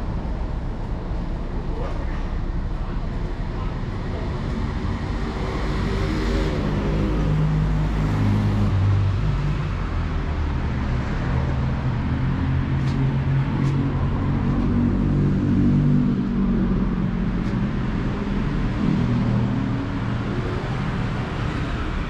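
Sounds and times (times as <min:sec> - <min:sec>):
city traffic rumble: 0:00.0 - 0:22.0
engine hum: 0:00.0 - 0:22.0.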